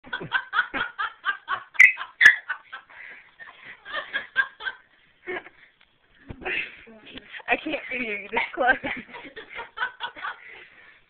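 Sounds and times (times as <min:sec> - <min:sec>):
people giggling: 0:00.0 - 0:05.6, 0:08.3 - 0:10.9.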